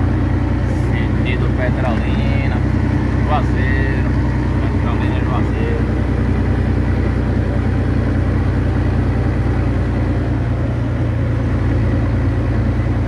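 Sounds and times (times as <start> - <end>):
road noise: 0.0 - 13.0
vehicle engine hum: 0.0 - 13.0.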